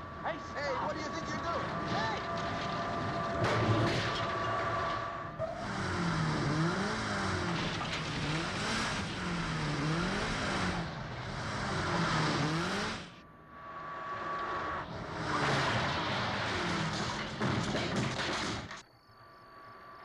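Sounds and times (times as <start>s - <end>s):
steady high whine: 0.0s - 7.9s
car engines revving: 0.0s - 18.8s
tyres skidding in dirt: 0.0s - 18.8s.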